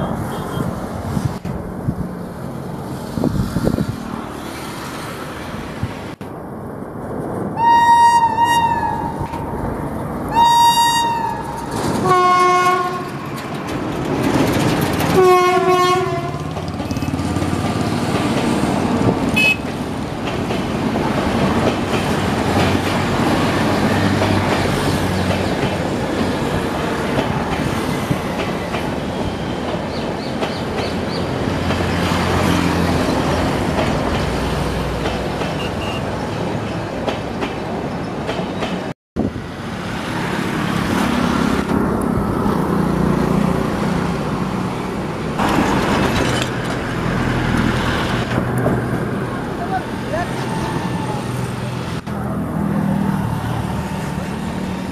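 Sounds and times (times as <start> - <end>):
train coaches rumbling past: 0.0 - 54.9
locomotive horn: 7.6 - 9.3, 10.3 - 13.2, 15.1 - 16.5, 19.4 - 19.6
wheels clacking over rail joints: 9.2 - 38.9, 40.3 - 51.1.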